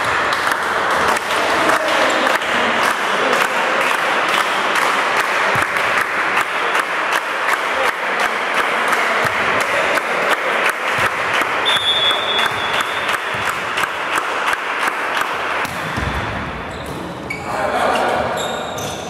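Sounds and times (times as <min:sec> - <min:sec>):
spectators clapping: 0:00.0 - 0:15.7
crowd noise: 0:00.0 - 0:19.0
referee's whistle: 0:11.6 - 0:13.1.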